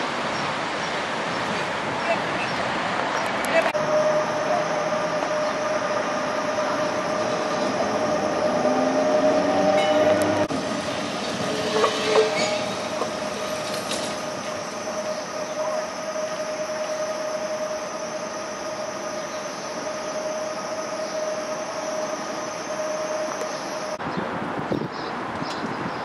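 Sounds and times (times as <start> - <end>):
tram clunk: 3.0 - 24.0
tram motor whine: 3.3 - 24.0
wheel squeal: 11.3 - 24.0.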